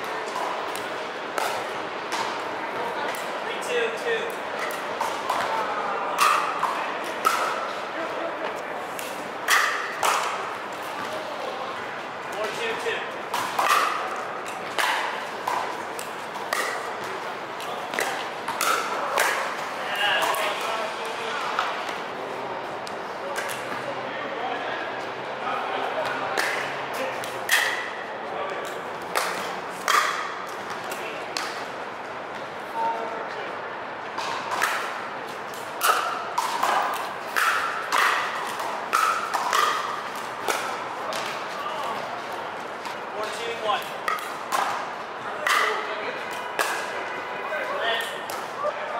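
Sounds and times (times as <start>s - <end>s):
paddles hitting plastic ball: 12.3s - 20.6s, 34.1s - 42.1s, 42.8s - 45.8s.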